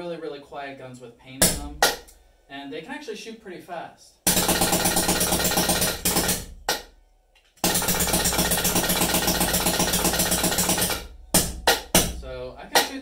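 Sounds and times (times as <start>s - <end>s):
paintball marker rapid-firing: 4.3s - 6.5s, 7.6s - 11.1s.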